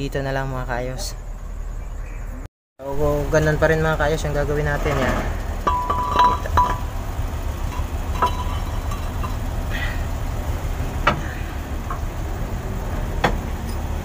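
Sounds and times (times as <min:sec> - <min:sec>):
low machine hum: 0:00.0 - 0:14.0
steel liner clinking: 0:05.6 - 0:07.0, 0:07.6 - 0:09.6.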